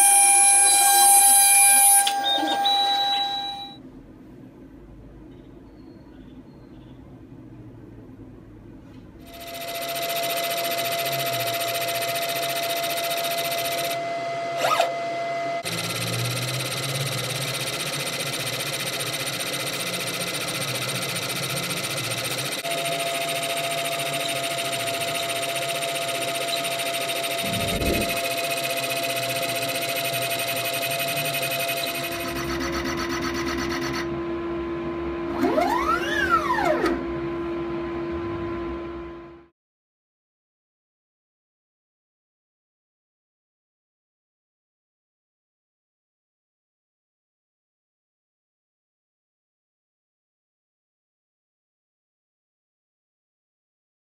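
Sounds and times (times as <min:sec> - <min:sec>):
laser engraver humming and whining: 0:00.0 - 0:03.8, 0:09.2 - 0:39.4.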